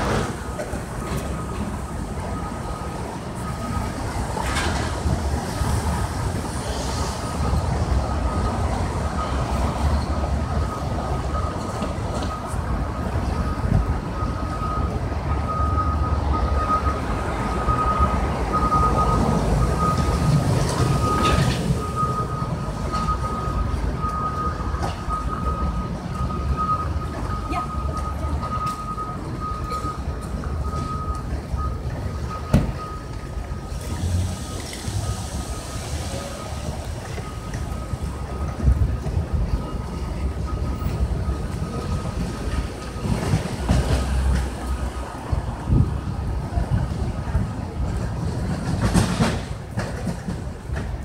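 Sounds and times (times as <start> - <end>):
traffic rumble: 0.0 - 51.0
rush of passing vehicle: 30.6 - 51.0.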